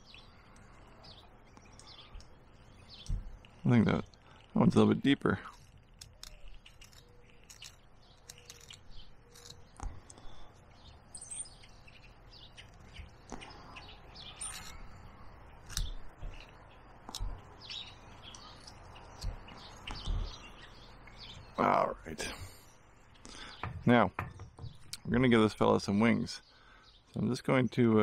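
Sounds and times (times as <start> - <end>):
birds chirping: 0.0 - 28.0
knife whittling wood: 5.4 - 10.2
low knocks of handling: 23.6 - 24.9.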